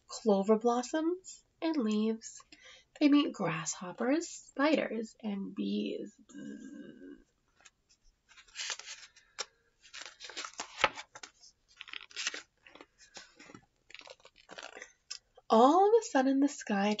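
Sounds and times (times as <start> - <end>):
book pages rustling: 7.6 - 14.9.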